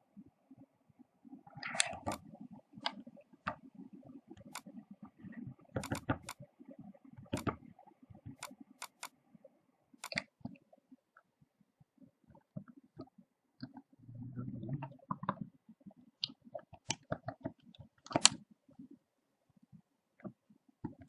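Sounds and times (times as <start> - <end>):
keyboard and mouse clicks: 1.6 - 3.6, 4.4 - 4.8, 5.6 - 6.5, 7.2 - 9.2, 10.0 - 10.6, 16.2 - 18.4, 20.2 - 21.0
low muffled rumble: 14.0 - 15.0.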